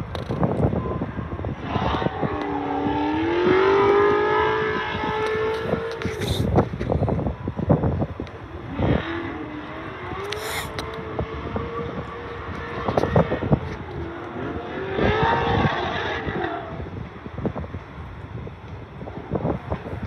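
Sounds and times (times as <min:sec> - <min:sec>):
wavering wheel squeal: 0:10.1 - 0:16.8.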